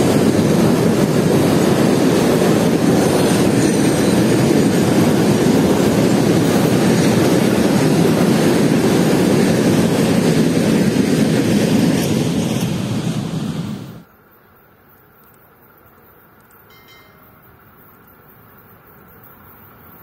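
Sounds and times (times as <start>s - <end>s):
freight wagons rumbling over bridge: 0.0s - 14.0s.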